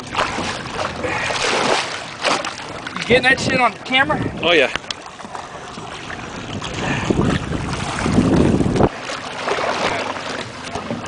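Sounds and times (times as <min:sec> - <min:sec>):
water splashing and churning: 0:00.0 - 0:11.0
wind buffeting microphone: 0:02.7 - 0:09.1.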